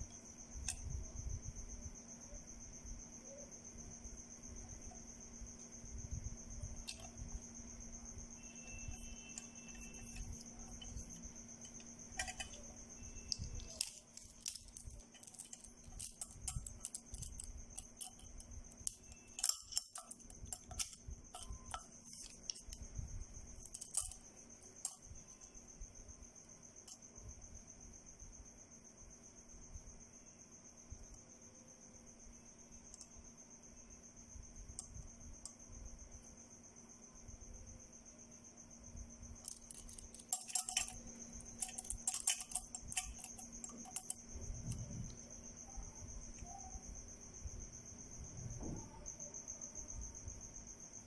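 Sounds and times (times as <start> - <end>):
clicks and light metallic knocks: 8.4 - 22.8, 23.6 - 25.4, 32.9 - 33.2, 39.4 - 45.2.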